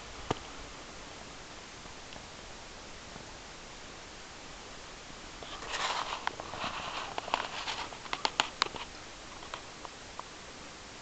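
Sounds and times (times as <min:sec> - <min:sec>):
steady hiss: 0:00.0 - 0:11.0
faint ticks: 0:01.8 - 0:02.3, 0:05.4 - 0:10.4
sharp cracks: 0:05.5 - 0:10.0.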